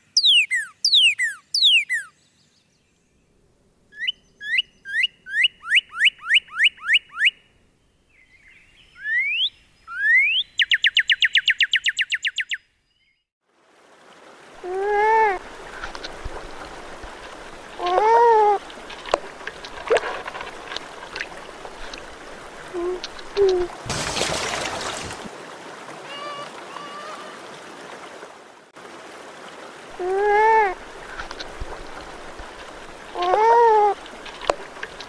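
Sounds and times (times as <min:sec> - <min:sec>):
bird whistling and trilling: 0:00.2 - 0:02.1, 0:04.0 - 0:07.4, 0:08.9 - 0:12.6
animal low call: 0:21.9 - 0:23.8.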